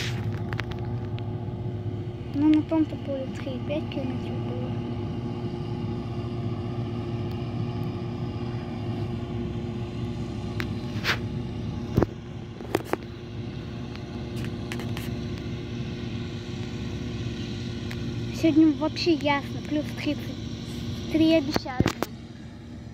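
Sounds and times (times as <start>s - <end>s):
diesel machinery droning: 0.0s - 22.9s.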